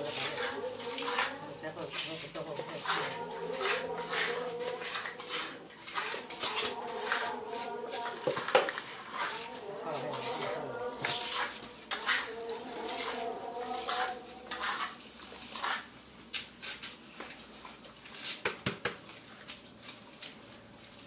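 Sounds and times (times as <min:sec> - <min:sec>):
cement slurry emptied onto concrete: 0:00.0 - 0:16.9.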